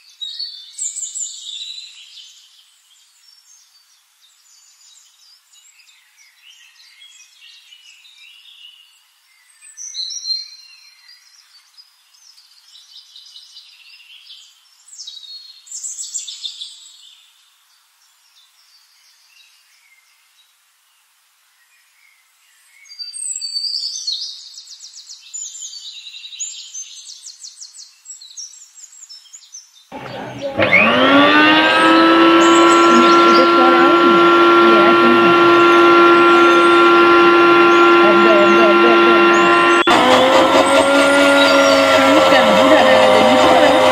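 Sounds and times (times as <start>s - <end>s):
toy blender motor whining: 29.9s - 43.9s.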